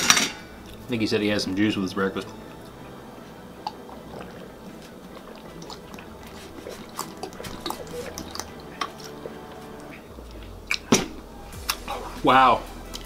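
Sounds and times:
person gulping juice: 3.5 - 11.9.

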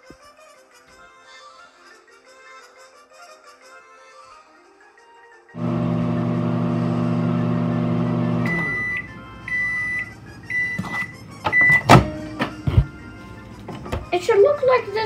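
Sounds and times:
microwave oven humming: 5.6 - 10.8.

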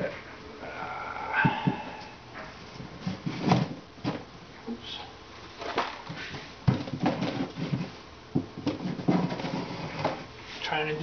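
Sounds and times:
wooden frames scraping: 2.6 - 4.3, 5.6 - 10.4
wooden knocks and bumps: 6.6 - 10.2.

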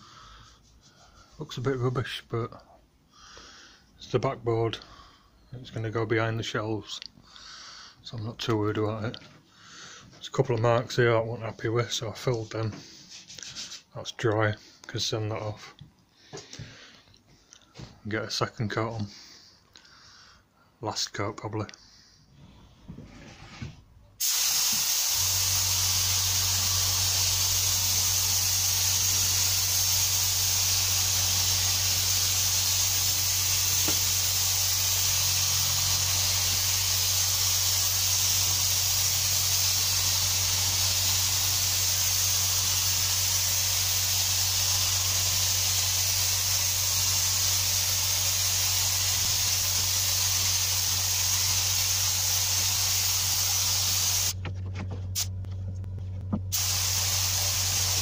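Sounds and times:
spray gun hissing: 24.2 - 54.4, 56.5 - 58.0
low hum: 54.4 - 58.0.

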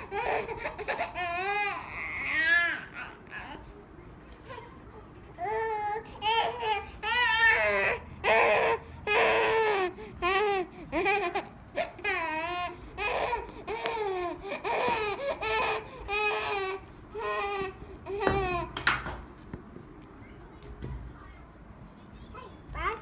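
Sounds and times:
baby crying: 0.0 - 3.6, 5.4 - 18.8.

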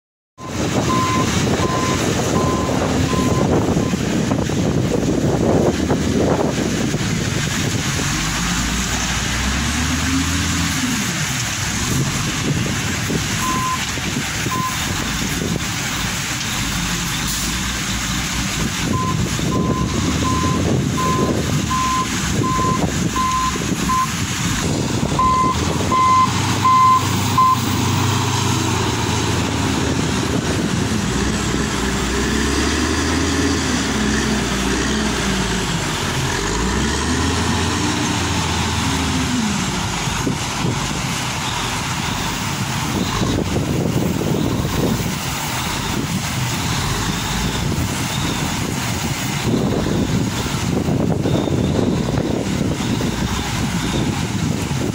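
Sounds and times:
reversing alarm beeps: 0.4 - 3.5, 13.4 - 13.8, 18.9 - 24.1, 25.2 - 27.7
diesel engine revving and droning: 0.4 - 54.9.

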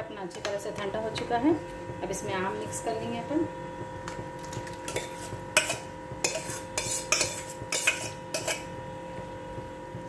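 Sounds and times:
metal spoon clinking on bowls: 4.9 - 8.6.

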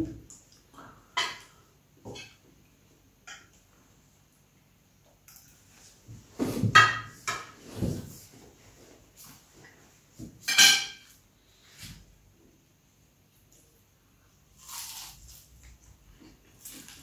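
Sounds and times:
plates and cutlery clinking: 6.5 - 7.9, 10.4 - 11.2.

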